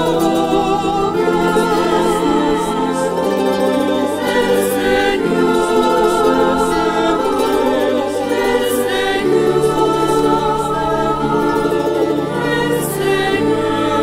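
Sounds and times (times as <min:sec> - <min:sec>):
choir singing: 0:00.0 - 0:14.0
low accompaniment: 0:00.0 - 0:14.0.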